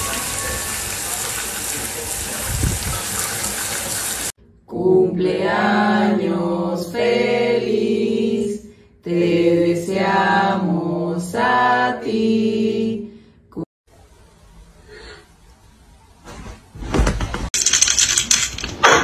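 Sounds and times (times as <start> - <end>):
shower water hissing: 0.0 - 4.4.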